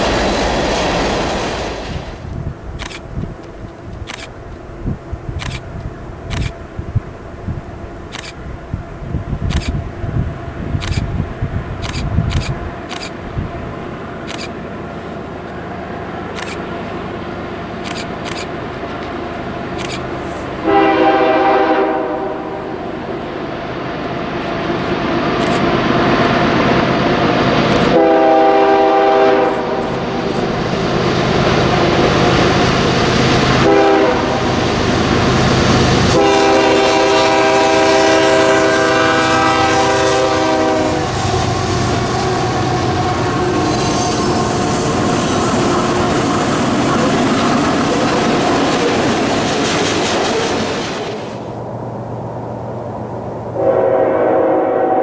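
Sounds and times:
train rolling past: 0:00.0 - 0:55.0
locomotive air horn: 0:20.6 - 0:22.8, 0:27.9 - 0:29.9, 0:33.6 - 0:34.4, 0:36.1 - 0:44.9, 0:53.6 - 0:55.0.

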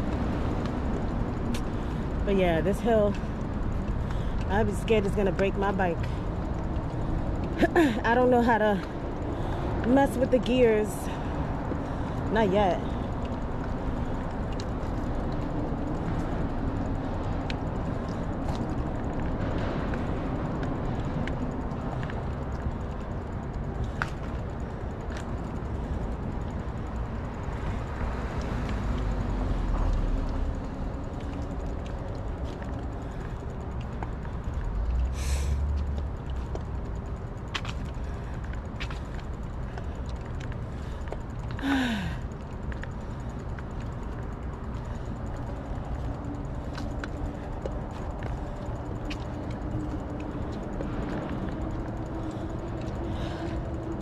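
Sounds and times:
outdoor background noise: 0:00.0 - 0:54.0
person breathing hard: 0:35.1 - 0:35.7, 0:40.8 - 0:42.3.

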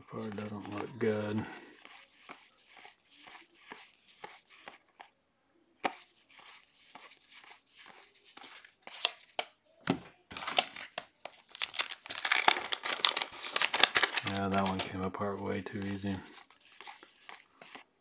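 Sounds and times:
wax-paper wrappers crinkling: 0:00.0 - 0:05.1, 0:10.3 - 0:17.9.

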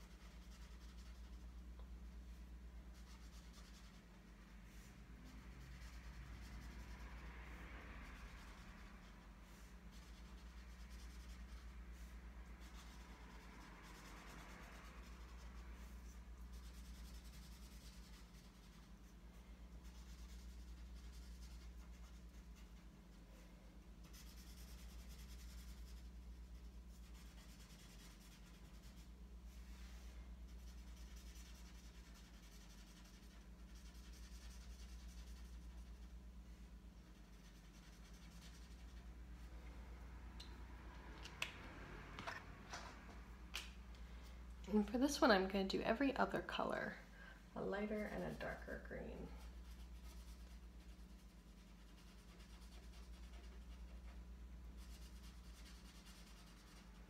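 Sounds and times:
marker scratching on paper: 0:00.0 - 0:01.5, 0:02.9 - 0:07.6, 0:08.2 - 0:23.2, 0:24.0 - 0:36.1, 0:37.0 - 0:39.2, 0:47.9 - 0:57.0
low steady hum: 0:00.0 - 0:57.0.

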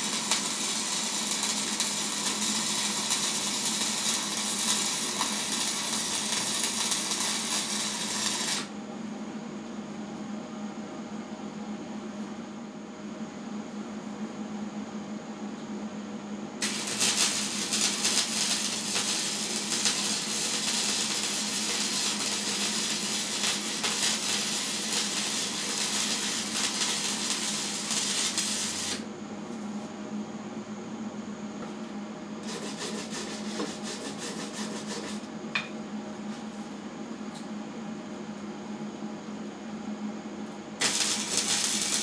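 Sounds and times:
welding arc crackling: 0:00.0 - 0:08.7, 0:16.6 - 0:29.0, 0:40.8 - 0:42.0.

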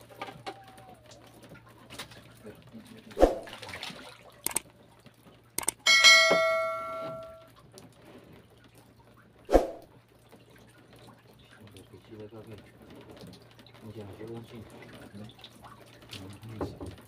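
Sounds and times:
metal object struck ringing: 0:05.9 - 0:07.5.

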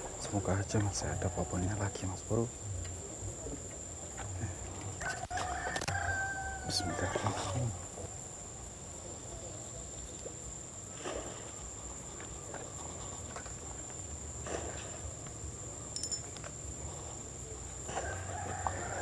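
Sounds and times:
high-pitched insect drone: 0:00.0 - 0:10.1.

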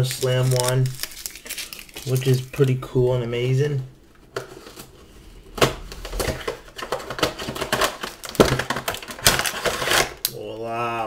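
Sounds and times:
packaging being opened: 0:00.0 - 0:02.8.

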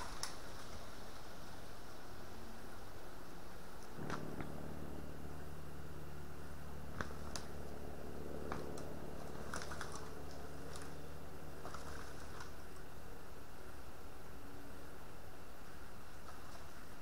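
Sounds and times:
low electronic hum: 0:00.0 - 0:17.0
twigs snapping underfoot: 0:08.5 - 0:11.0, 0:11.6 - 0:12.9.

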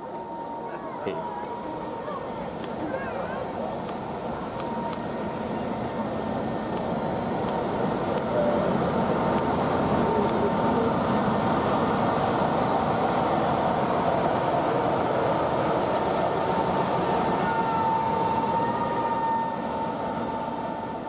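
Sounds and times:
diesel locomotive engine passing: 0:00.0 - 0:21.0
steady high whistle: 0:16.4 - 0:21.0.

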